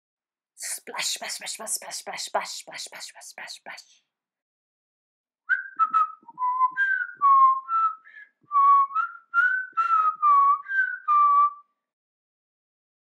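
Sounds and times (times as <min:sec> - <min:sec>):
person whistling a tune: 0:05.5 - 0:11.7.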